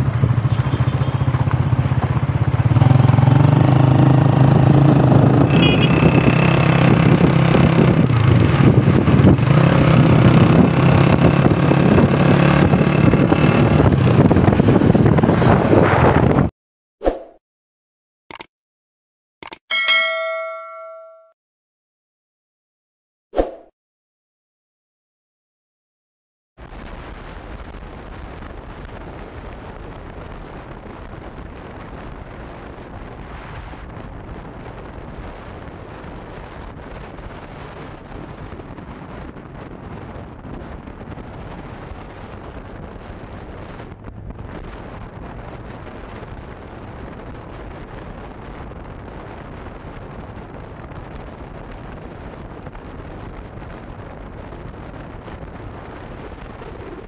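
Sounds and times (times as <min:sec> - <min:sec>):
motorcycle riding: 0:00.0 - 0:16.5
wind buffeting microphone: 0:01.5 - 0:16.5, 0:26.8 - 0:57.0.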